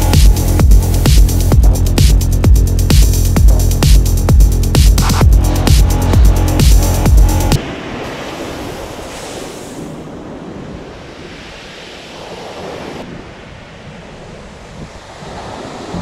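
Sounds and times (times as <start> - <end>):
wind rumbling on microphone: 5.2 - 16.0.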